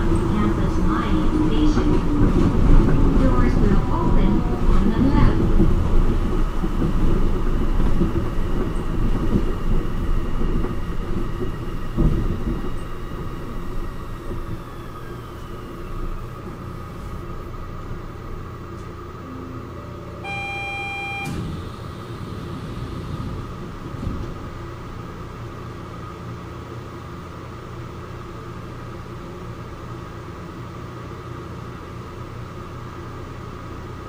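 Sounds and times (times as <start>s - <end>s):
train car humming: 0.0s - 34.0s
electronic beep-chime: 19.2s - 21.4s.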